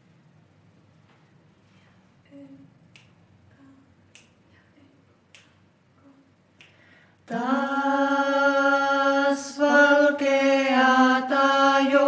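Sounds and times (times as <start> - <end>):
finger snaps: 2.9 - 3.2, 4.1 - 4.4, 5.3 - 5.6, 6.6 - 6.9.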